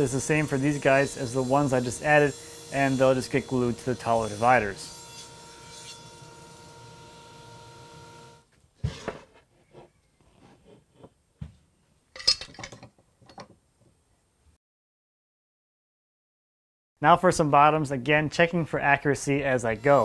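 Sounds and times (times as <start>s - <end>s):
table saw humming: 0.0s - 9.2s, 19.4s - 20.0s.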